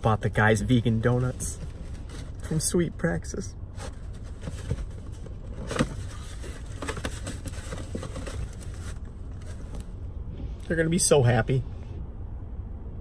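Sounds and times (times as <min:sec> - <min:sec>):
steady low rumble: 0:00.0 - 0:13.0
cardboard box rustling and scraping: 0:00.6 - 0:02.8, 0:03.7 - 0:09.9.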